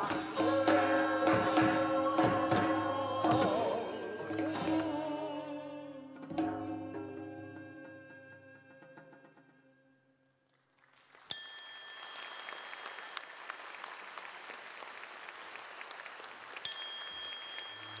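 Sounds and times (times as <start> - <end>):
traditional music ensemble: 0.0 - 9.7
audience applause: 12.0 - 18.0.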